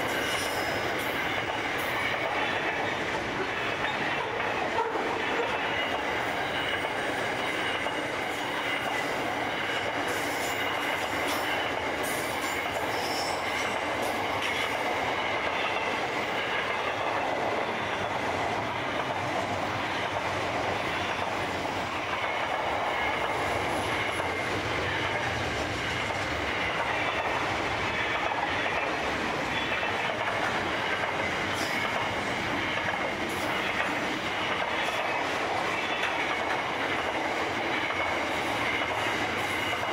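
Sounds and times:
train wheels rumbling on rails: 0.0s - 39.9s
high wheel squeal: 12.8s - 13.8s.

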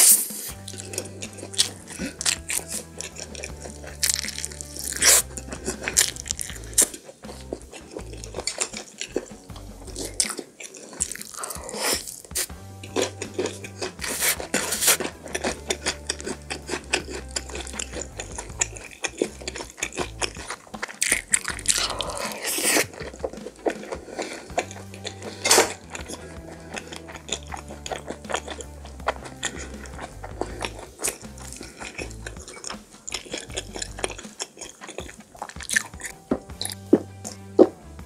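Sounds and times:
crunchy chewing mouth sounds: 0.0s - 37.9s
background music: 0.0s - 38.0s.

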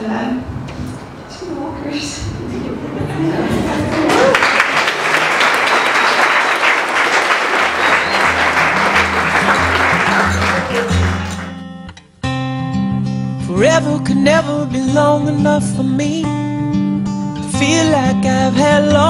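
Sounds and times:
crowd applauding: 3.8s - 11.8s
acoustic guitar music: 7.7s - 19.0s.

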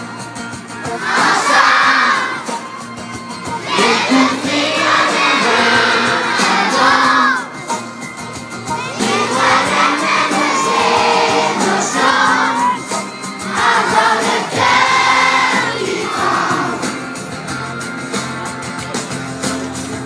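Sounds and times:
children singing in unison: 0.9s - 2.6s, 3.6s - 7.6s, 8.8s - 17.0s.

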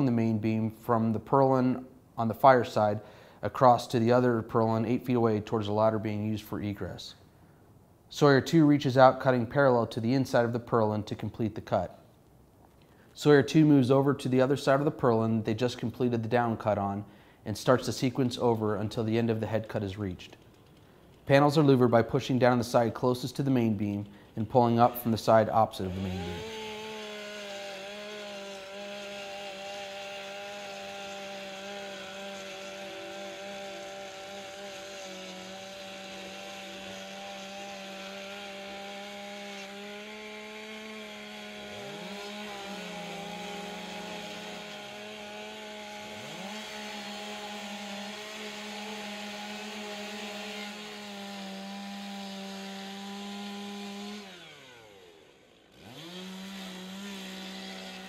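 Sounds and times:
chainsaws cutting wood: 2.4s - 6.7s, 12.9s - 58.0s
chainsaw revving up and down: 21.3s - 58.0s.

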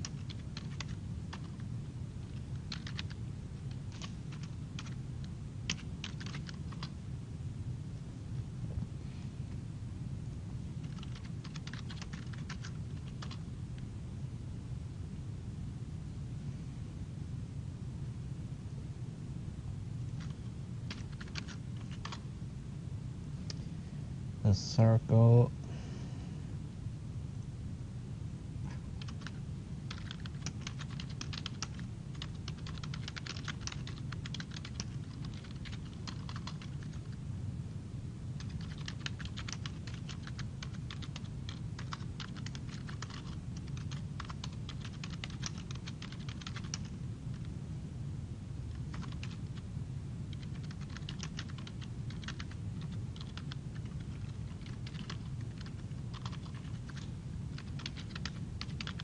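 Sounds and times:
keyboard typing: 0.0s - 5.0s, 5.7s - 6.9s, 10.8s - 13.4s, 20.2s - 22.2s, 29.0s - 37.1s, 38.4s - 47.4s, 48.7s - 49.6s, 50.3s - 59.0s
steady low hum: 0.0s - 59.0s.

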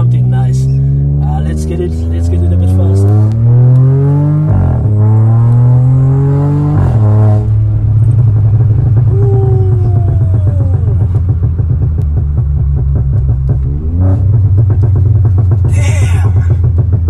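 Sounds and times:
car engine accelerating: 0.0s - 17.0s
exhaust pops and crackles: 6.8s - 17.0s.

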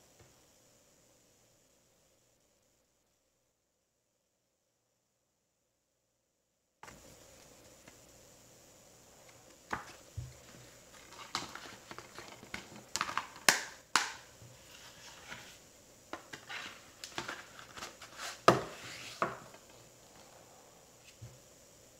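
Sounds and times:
plastic cases tapping and clicking: 11.1s - 14.2s.

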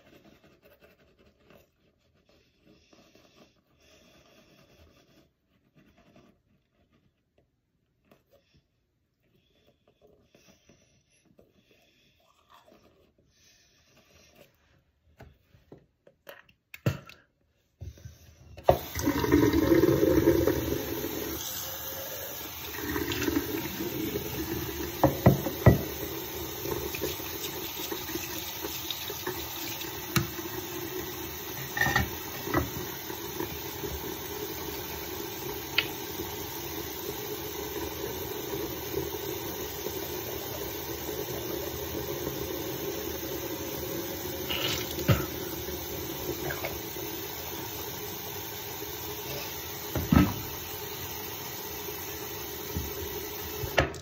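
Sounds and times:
tap running into sink: 22.7s - 30.6s, 31.5s - 34.0s, 44.5s - 45.6s, 49.8s - 50.6s, 52.6s - 54.0s.

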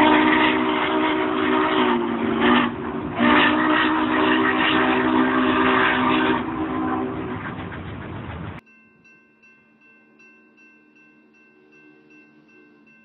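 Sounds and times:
steam whistle: 0.0s - 7.6s
steady rushing noise: 6.4s - 8.6s.

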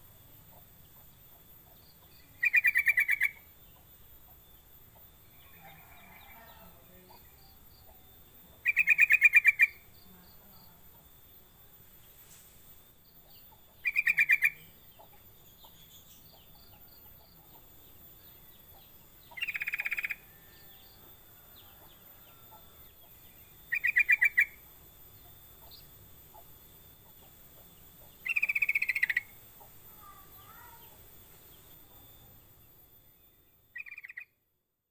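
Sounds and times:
bulbul calling: 1.7s - 4.4s, 7.1s - 10.2s, 13.2s - 20.4s, 22.5s - 32.2s, 33.7s - 34.4s.

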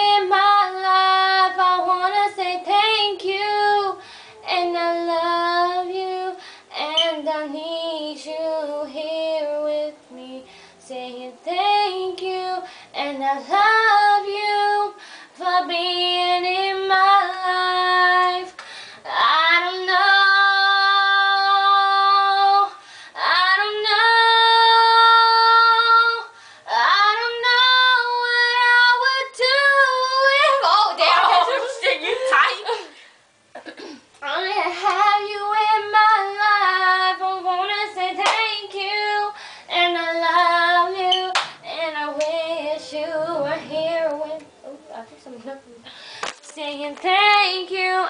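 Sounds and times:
girl singing unaccompanied: 0.0s - 32.9s, 33.8s - 48.0s.

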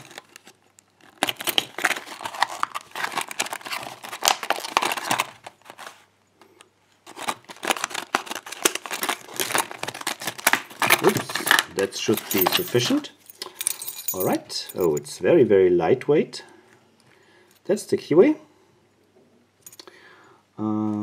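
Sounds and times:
plastic packaging crinkling: 0.0s - 6.1s, 6.9s - 13.0s.

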